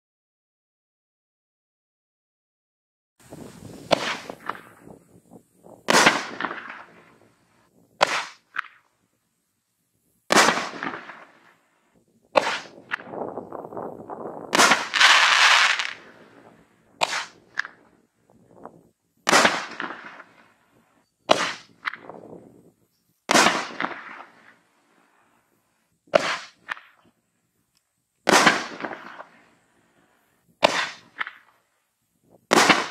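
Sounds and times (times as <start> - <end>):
firework sizzling: 3.2 - 9.1, 9.9 - 22.6, 23.3 - 27.1, 28.2 - 31.8, 32.5 - 32.9
firework shell bangs: 5.9 - 7.1, 10.3 - 11.4, 12.3 - 13.2, 14.5 - 16.0, 17.0 - 17.8, 21.3 - 22.1, 23.3 - 24.4, 30.6 - 31.4, 32.5 - 32.9.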